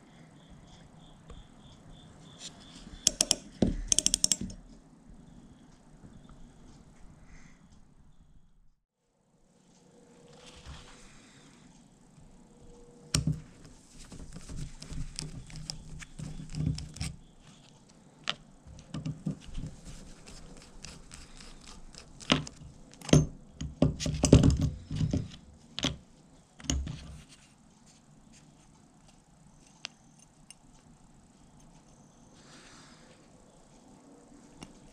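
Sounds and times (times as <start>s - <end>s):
metal clicks scrapes and knocks: 2.4s - 4.8s, 13.2s - 17.7s
screwdriver turning screws: 14.2s - 17.2s, 18.7s - 23.3s.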